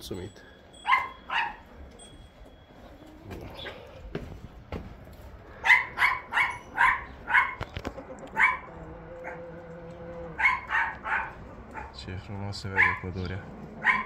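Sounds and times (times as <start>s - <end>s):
dog barking: 0.8s - 1.6s, 5.6s - 7.7s, 8.3s - 9.5s, 10.4s - 12.0s, 12.7s - 13.2s, 13.8s - 14.0s.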